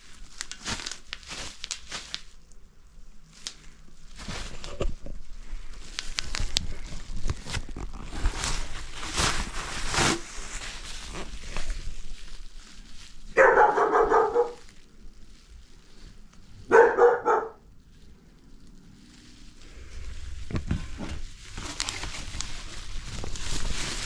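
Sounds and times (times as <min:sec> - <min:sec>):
bubble wrap crinkling: 0:00.0 - 0:24.0
dog barking: 0:13.4 - 0:14.6, 0:16.7 - 0:17.6.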